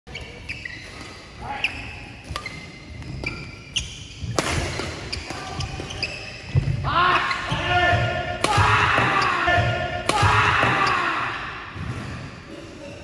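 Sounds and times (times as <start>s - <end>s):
shoes squeaking on court: 0.1s - 7.7s
rackets hitting shuttlecock: 2.2s - 6.8s.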